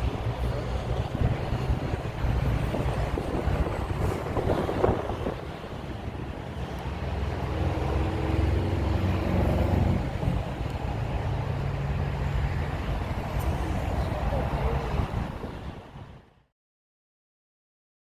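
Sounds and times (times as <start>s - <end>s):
low engine rumble: 0.0s - 16.4s.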